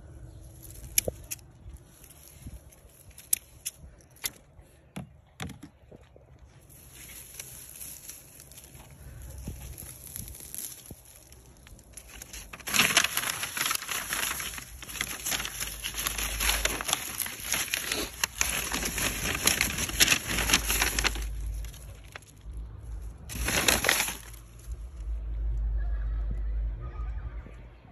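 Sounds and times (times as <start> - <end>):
plant stems rustling: 0.1 - 4.4, 6.4 - 25.1
paper bag crinkling: 6.7 - 24.9.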